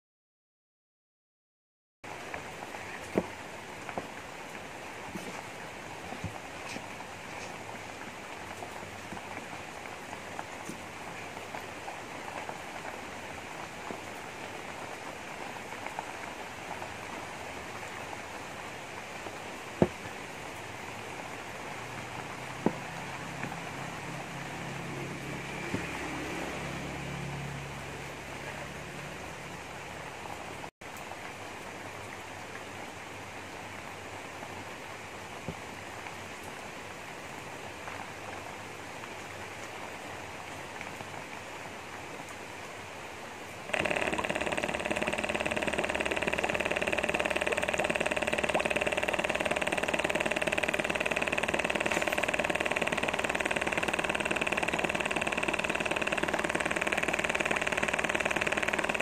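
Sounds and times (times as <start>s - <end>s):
small electric pump motor whining: 22.4s - 27.4s, 43.7s - 59.0s.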